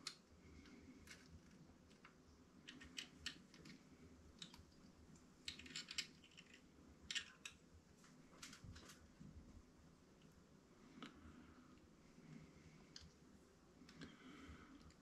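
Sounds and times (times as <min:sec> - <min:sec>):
metal picks clicking and scraping: 0:05.4 - 0:07.6.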